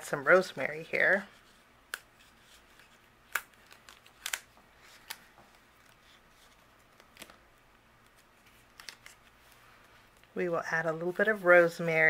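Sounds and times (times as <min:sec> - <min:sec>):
paper rustling: 0:01.3 - 0:07.4, 0:08.0 - 0:10.0.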